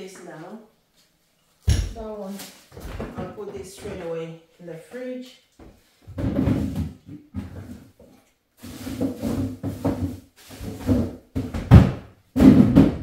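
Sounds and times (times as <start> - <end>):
cupboard opening and shutting: 6.1 - 8.0, 8.6 - 13.0
items set down: 8.6 - 11.8.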